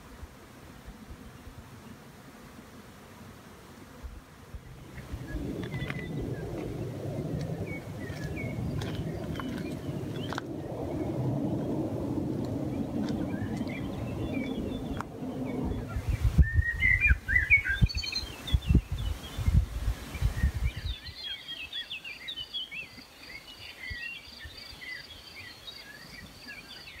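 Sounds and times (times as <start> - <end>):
heavy low rumble and buffeting: 4.6 - 17.1
songbirds singing and chirping: 4.6 - 27.0.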